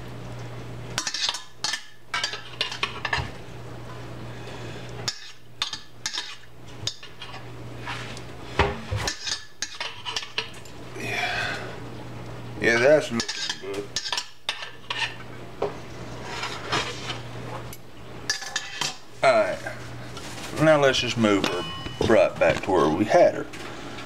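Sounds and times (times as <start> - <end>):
steady low hum: 0.0 - 24.0
metal spoon scraping steel bowl: 13.2 - 14.2.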